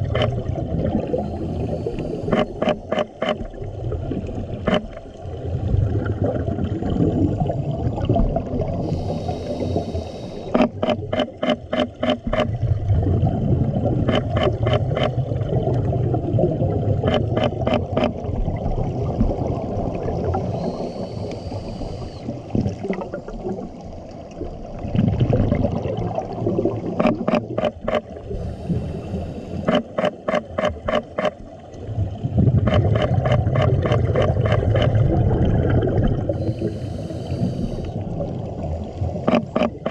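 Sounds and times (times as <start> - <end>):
regulator hiss on inhale: 1.2 - 2.6, 8.8 - 10.7, 20.5 - 22.4, 28.3 - 29.8, 36.4 - 38.0
rumbling exhaust bubbles: 12.6 - 17.4, 32.0 - 36.8.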